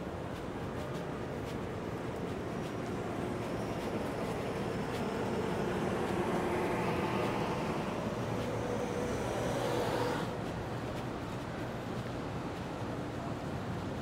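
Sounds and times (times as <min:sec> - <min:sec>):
city street traffic: 0:00.0 - 0:14.0
faint engine tone: 0:01.7 - 0:10.8.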